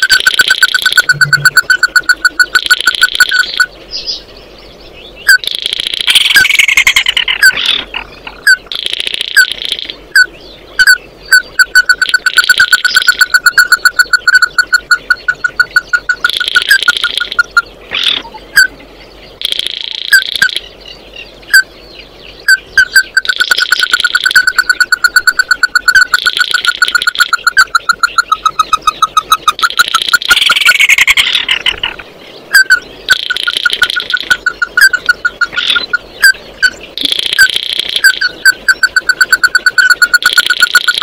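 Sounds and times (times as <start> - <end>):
bird calling short sharp notes: 0.0 - 3.7
harsh bird chatter: 0.0 - 41.0.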